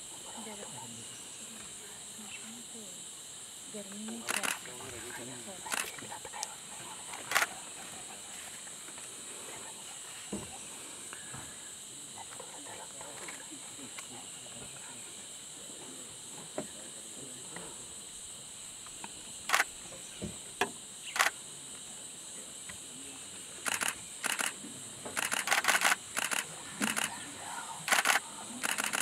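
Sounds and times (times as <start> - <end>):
high-pitched insect drone: 0.0 - 29.0
camera shutters clicking: 23.7 - 24.5, 25.2 - 27.1, 27.9 - 29.0.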